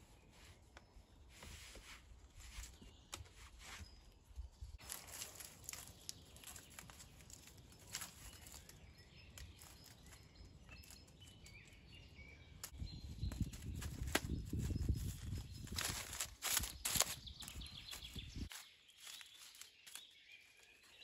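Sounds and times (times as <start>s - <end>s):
faint bird chirps: 0.0s - 21.0s
dry reeds rustling: 4.7s - 11.8s, 12.6s - 21.0s.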